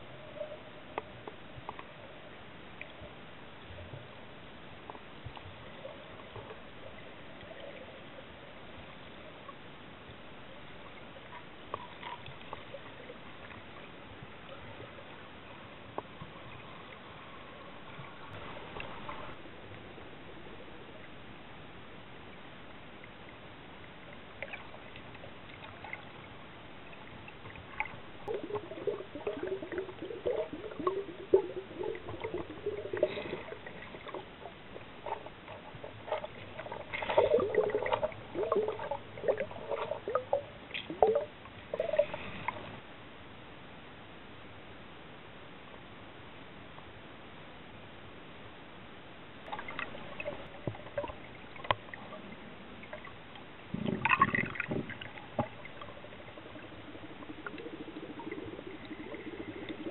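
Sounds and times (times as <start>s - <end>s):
muffled underwater hiss: 0.0s - 59.9s
underwater gurgling and bubbling: 24.2s - 42.8s, 49.5s - 59.9s.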